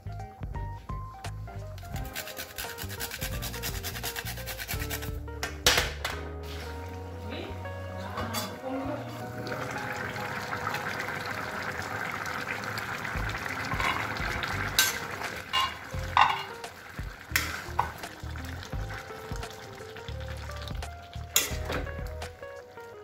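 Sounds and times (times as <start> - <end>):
background music: 0.0 - 23.0
curry sizzling in a pan: 6.3 - 23.0
spatula stirring and knocking pan: 13.2 - 19.6, 20.6 - 22.3.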